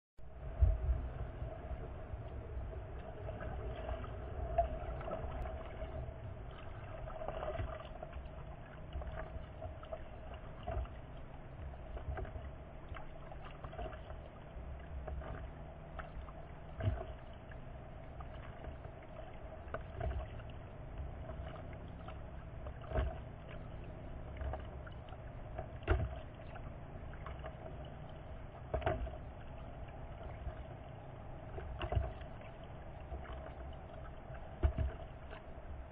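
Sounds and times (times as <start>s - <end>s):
faint steady hum: 0.2s - 35.9s
low steady rumble: 0.2s - 35.9s
paddle splashing water: 0.3s - 35.9s.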